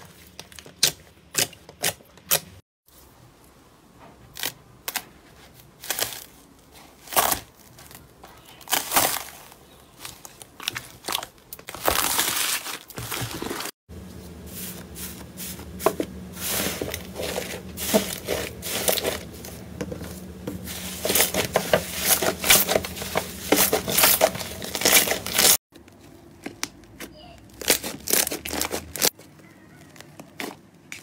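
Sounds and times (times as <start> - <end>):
foam slime crunching: 4.3 - 13.8, 14.5 - 25.6, 26.6 - 29.2.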